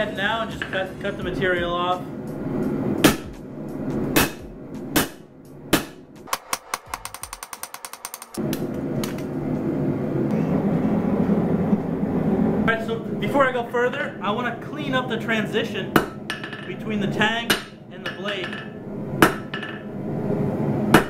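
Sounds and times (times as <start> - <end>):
hammer striking hot steel: 3.0 - 3.4, 4.1 - 9.2, 17.5 - 19.9.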